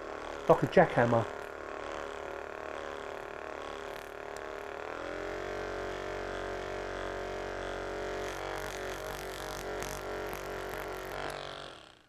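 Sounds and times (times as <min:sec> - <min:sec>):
massage gun humming: 0:00.0 - 0:12.0.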